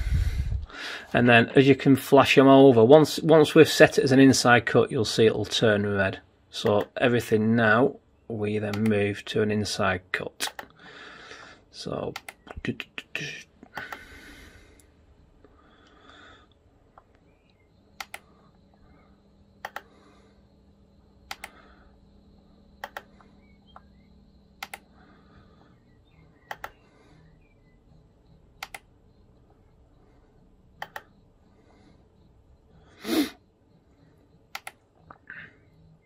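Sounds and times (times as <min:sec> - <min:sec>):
mouse button clicks: 0:26.5 - 0:26.8.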